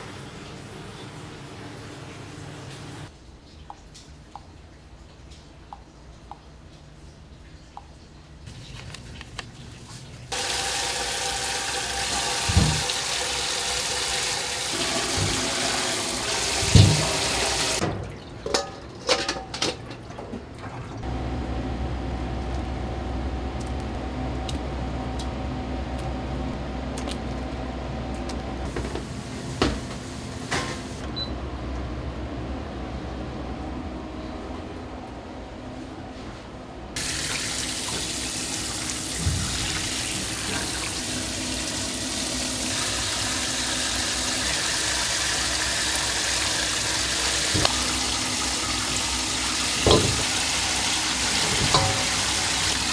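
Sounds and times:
tap water running into sink: 0:10.3 - 0:17.9, 0:37.0 - 0:52.9
dishes clinking: 0:18.4 - 0:19.9, 0:51.6 - 0:52.3.

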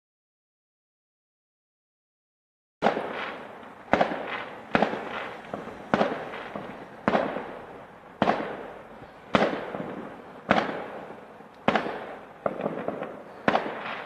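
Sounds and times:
firework shells bursting: 0:02.8 - 0:14.0.

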